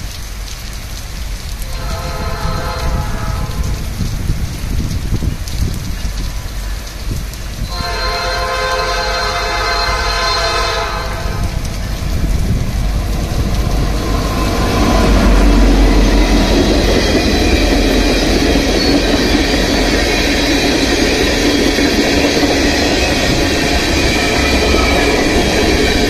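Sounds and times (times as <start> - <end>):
heavy rain: 0.0 - 26.0
train horn: 1.6 - 4.0, 7.6 - 12.0, 13.3 - 20.8, 23.0 - 26.0
diesel locomotive rumbling past: 1.6 - 4.6, 6.4 - 26.0.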